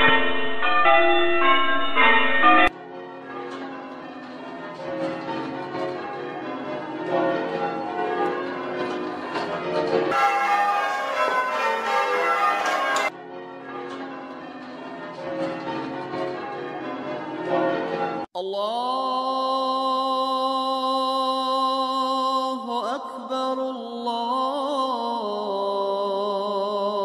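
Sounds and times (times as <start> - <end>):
church bells ringing: 0.0 - 18.2.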